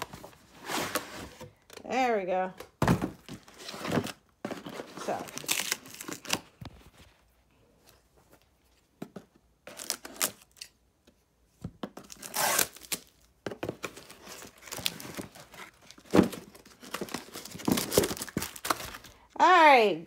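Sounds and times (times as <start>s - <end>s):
cardboard ripping and crinkling: 3.0s - 6.6s, 12.0s - 13.1s, 13.8s - 19.2s.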